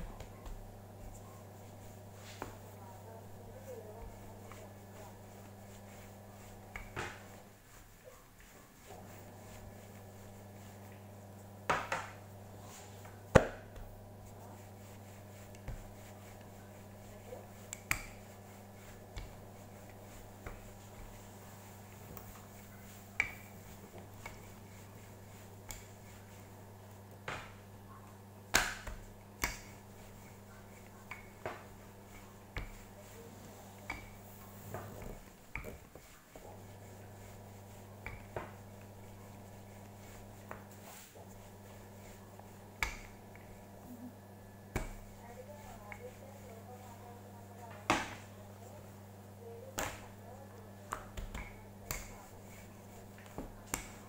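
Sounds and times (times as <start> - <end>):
steady low hum: 0.0 - 54.0
rolling pin knocking on wooden board: 11.6 - 12.2, 13.3 - 13.9.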